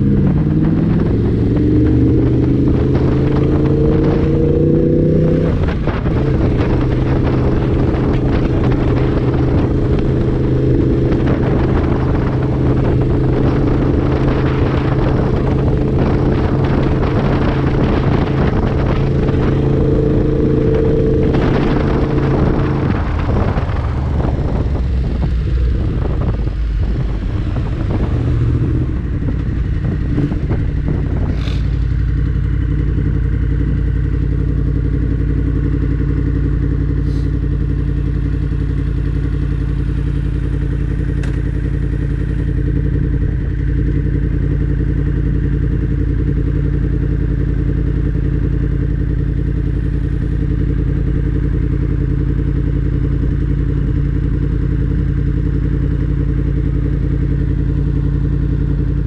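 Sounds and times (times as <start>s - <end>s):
wind rush: 0.0s - 34.2s
motorcycle engine running: 0.0s - 59.0s.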